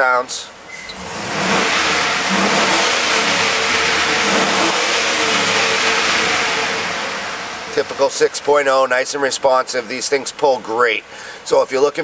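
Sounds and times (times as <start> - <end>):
engine revving: 0.7 - 8.5.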